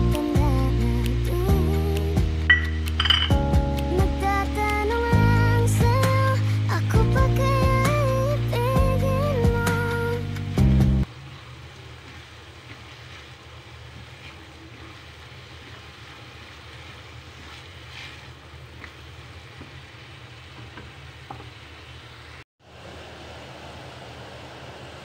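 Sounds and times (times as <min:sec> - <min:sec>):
vegetables sizzling in a pan: 0:11.1 - 0:22.4.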